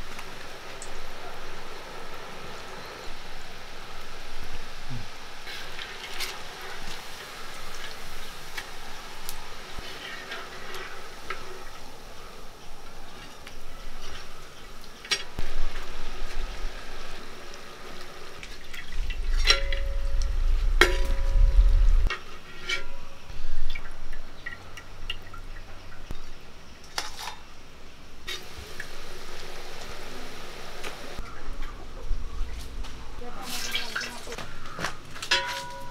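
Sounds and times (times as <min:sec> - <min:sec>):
low rumble: 0:18.7 - 0:22.1
oil sizzling: 0:28.3 - 0:31.2
skimmer clinking against pan: 0:35.3 - 0:35.9.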